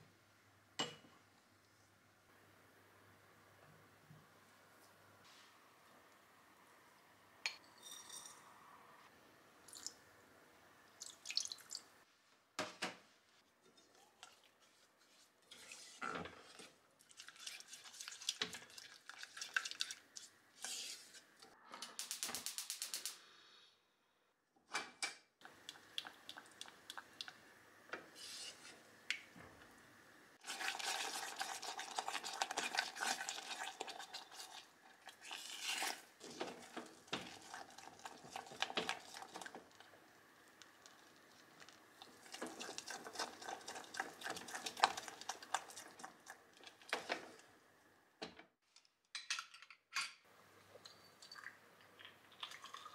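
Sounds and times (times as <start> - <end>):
glass clinking against pot: 7.5 - 8.4
spatula stirring and scraping: 13.6 - 21.4, 28.0 - 28.9, 30.4 - 40.0, 40.8 - 47.6.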